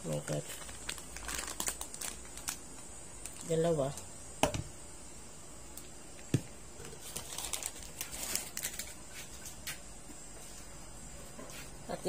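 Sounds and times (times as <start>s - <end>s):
powder crackling into plastic bowl: 0.0s - 4.7s, 6.2s - 9.8s.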